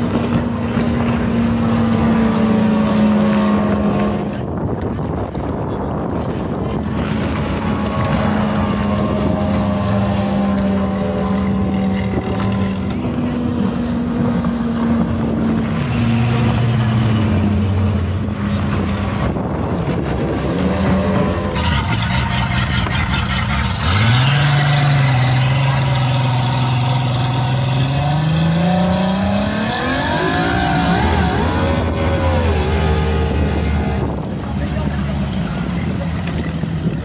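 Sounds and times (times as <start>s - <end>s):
powerboat engine running: 4.3s - 15.6s, 16.4s - 24.0s.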